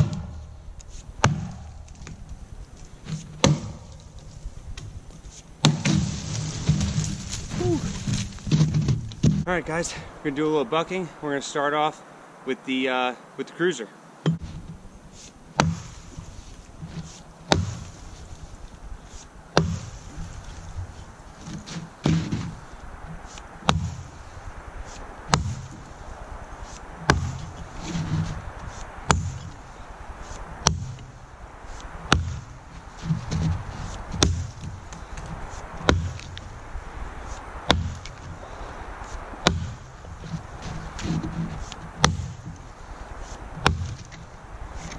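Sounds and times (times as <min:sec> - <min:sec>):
axe chopping into log: 0:00.0 - 0:00.4, 0:01.2 - 0:02.2, 0:03.1 - 0:04.0, 0:05.6 - 0:09.5, 0:15.6 - 0:16.2, 0:16.9 - 0:18.0, 0:19.1 - 0:20.1, 0:21.5 - 0:22.6, 0:23.3 - 0:24.0, 0:25.3 - 0:25.9, 0:26.6 - 0:29.6, 0:30.3 - 0:31.1, 0:31.8 - 0:36.4, 0:37.3 - 0:38.2, 0:39.4 - 0:42.6, 0:43.2 - 0:44.2.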